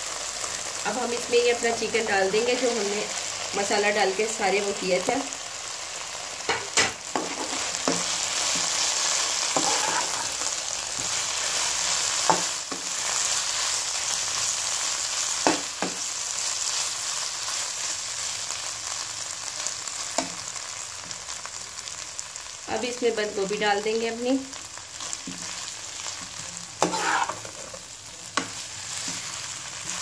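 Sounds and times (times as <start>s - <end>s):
food sizzling in hot oil: 0.0s - 30.0s
spatula knocking and scraping pan: 6.5s - 8.8s, 9.5s - 10.4s, 26.8s - 27.8s.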